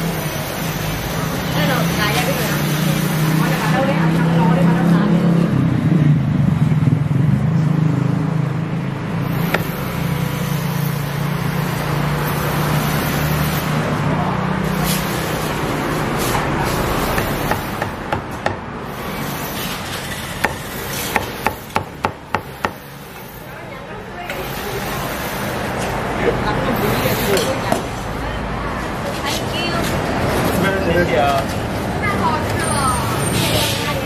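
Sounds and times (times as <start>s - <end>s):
street traffic: 0.0s - 34.0s
vehicle engine humming: 0.0s - 34.0s
cleaver chopping meat on wood: 9.4s - 9.8s, 17.0s - 18.6s, 20.4s - 22.8s.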